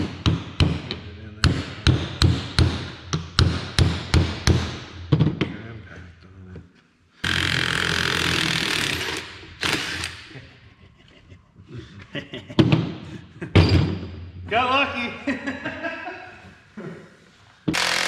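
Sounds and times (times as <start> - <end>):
cordless impact driver running: 7.2 - 10.2, 17.7 - 18.0.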